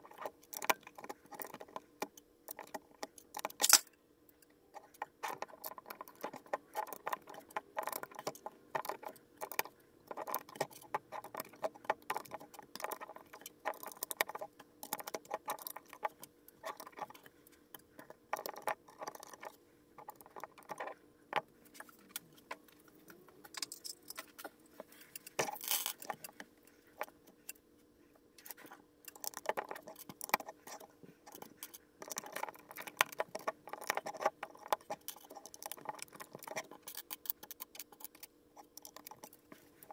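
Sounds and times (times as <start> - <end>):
plastic bricks clicking and rattling: 4.8 - 21.5, 25.3 - 26.4, 29.1 - 39.9.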